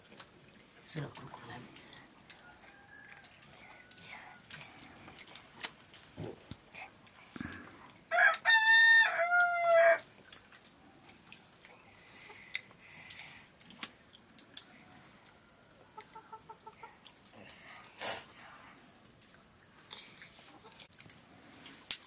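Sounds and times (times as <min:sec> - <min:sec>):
rooster crowing: 0:02.4 - 0:04.0, 0:08.1 - 0:10.0.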